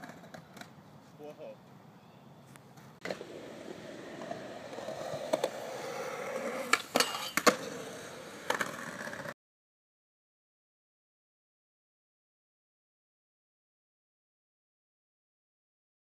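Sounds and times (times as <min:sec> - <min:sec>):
skateboard clacks: 0:00.0 - 0:00.8, 0:03.0 - 0:09.3
skateboard wheels rolling on concrete: 0:00.0 - 0:01.6, 0:02.5 - 0:09.4.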